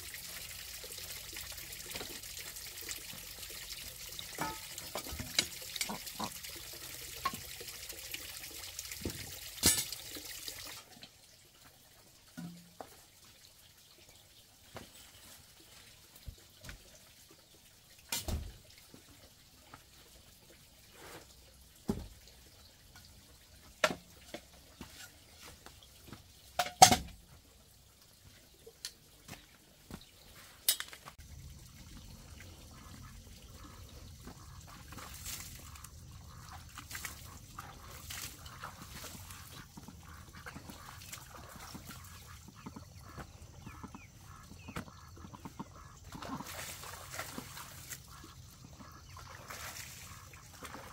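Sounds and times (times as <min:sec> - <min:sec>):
bamboo poles knocking: 0:26.6 - 0:27.1.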